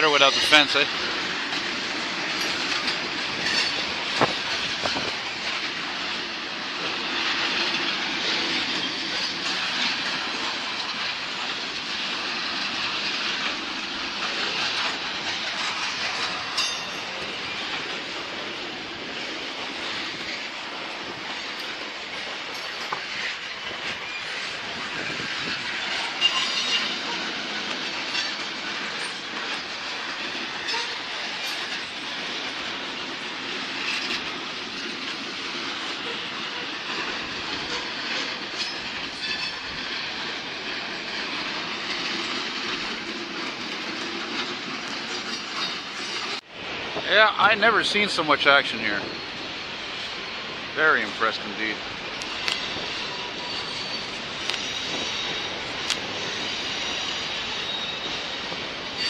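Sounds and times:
train wheels rolling on rails: 0.0s - 59.0s
wheels clicking over rail joints: 0.0s - 59.0s
wheel squeal: 22.6s - 29.7s, 30.3s - 32.1s, 35.9s - 40.2s, 52.2s - 59.0s.

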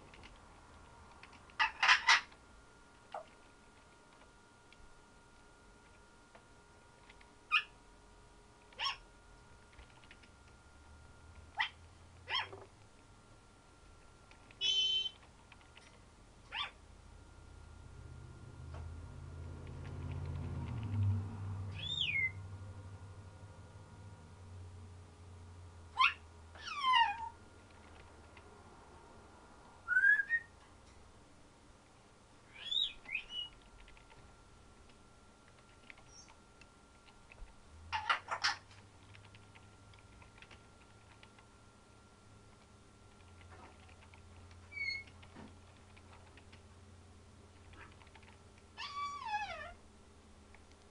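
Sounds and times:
parrot imitating dog barks: 8.8s - 9.0s, 26.0s - 27.3s
parrot whistled calls: 14.6s - 15.2s, 21.7s - 22.4s, 29.8s - 30.6s, 32.5s - 33.5s.

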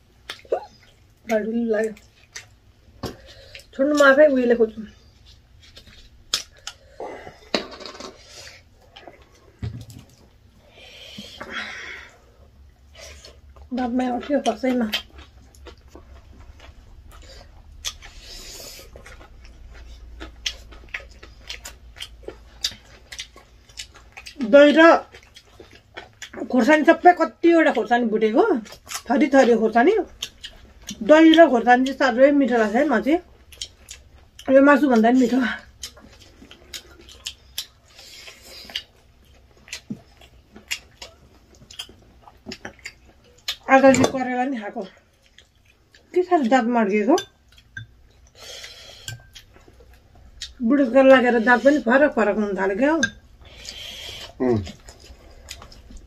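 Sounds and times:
chewing and lip smacks: 0.2s - 4.0s, 12.8s - 26.5s, 28.6s - 29.1s, 30.0s - 32.0s, 33.3s - 34.5s, 35.6s - 43.7s, 45.0s - 46.2s, 47.2s - 50.6s, 53.5s - 56.0s.

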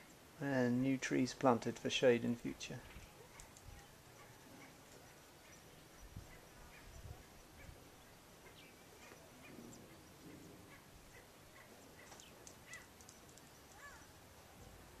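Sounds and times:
bird chirps and calls: 2.8s - 14.2s.

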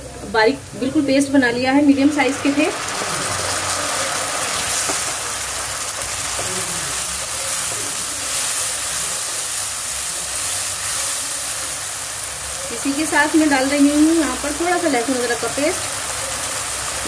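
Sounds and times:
food sizzling in hot oil: 0.0s - 17.0s
wooden spoon stirring: 2.2s - 11.8s.

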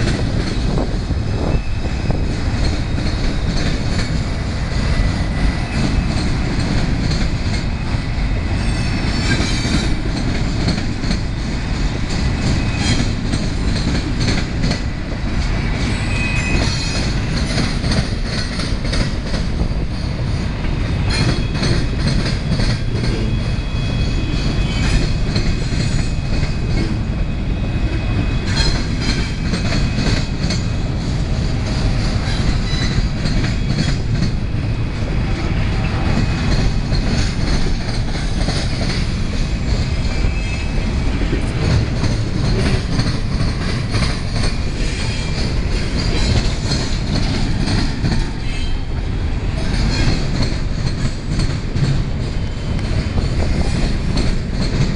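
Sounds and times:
clickety-clack over rail joints: 0.0s - 54.9s
train wheels rumbling on rail: 0.0s - 54.9s
high wheel squeals: 15.9s - 17.1s.

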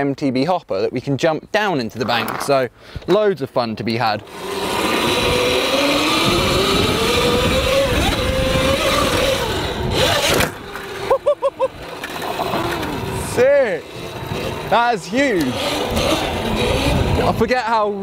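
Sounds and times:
tyre and wind noise: 0.9s - 18.0s
electric motor whining: 4.2s - 17.5s.

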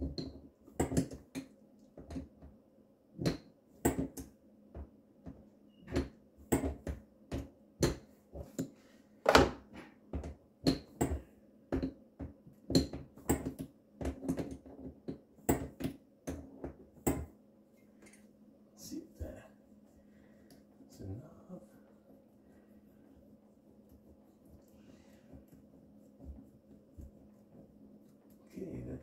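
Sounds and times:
knocks and clicks of sink hoses: 0.0s - 2.6s, 3.2s - 17.3s.

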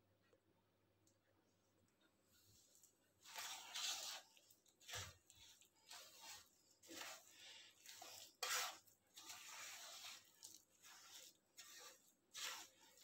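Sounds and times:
spatula scraping and squishing: 2.3s - 13.0s.

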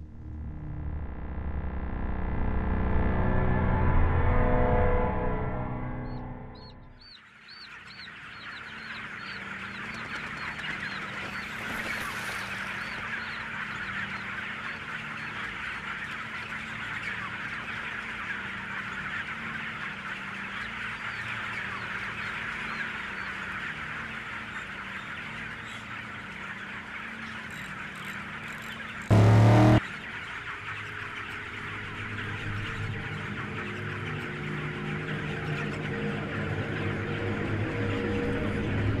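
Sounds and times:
steady low hum: 0.0s - 3.9s
chickens clucking and peeping: 6.6s - 39.0s.

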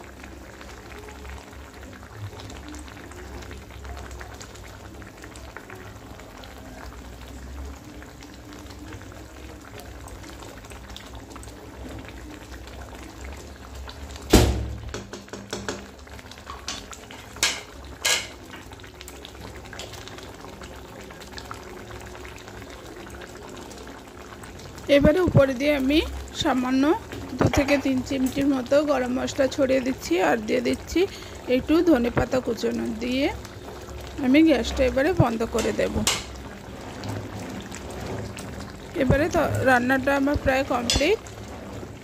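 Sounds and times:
gravy bubbling in pan: 0.0s - 42.0s
sharp knock: 14.3s - 15.8s.

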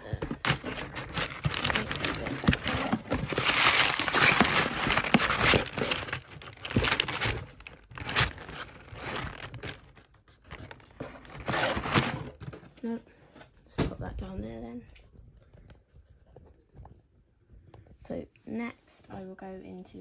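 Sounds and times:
packaging rustling and crinkling: 0.0s - 12.7s.

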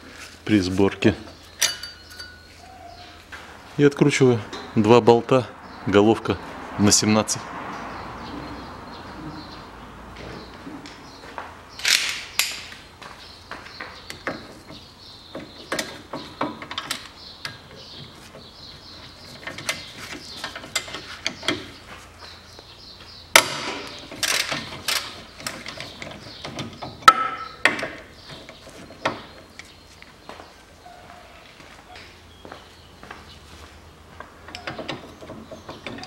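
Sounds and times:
metal clanks: 1.6s - 2.5s.

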